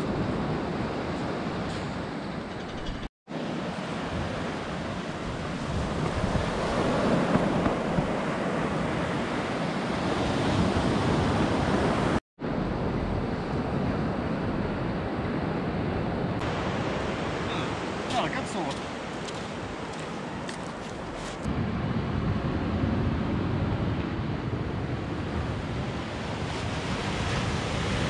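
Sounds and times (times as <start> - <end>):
wind buffeting microphone: 3.9 - 28.0
surf breaking on beach: 16.4 - 21.7.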